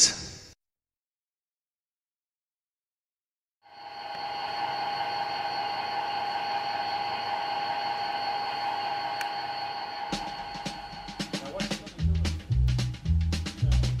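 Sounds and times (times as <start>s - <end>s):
model train electric whir and hum: 3.7s - 10.1s.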